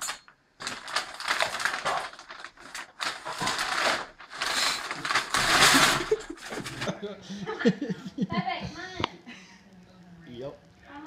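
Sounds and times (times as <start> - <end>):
paper bag rustling: 0.0 - 7.0.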